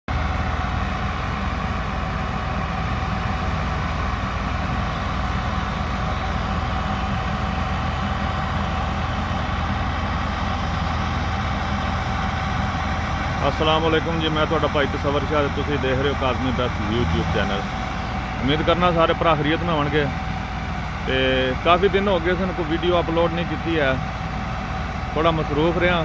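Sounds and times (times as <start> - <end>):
thresher whine: 0.1 - 26.0
tractor diesel engine running: 0.1 - 26.0.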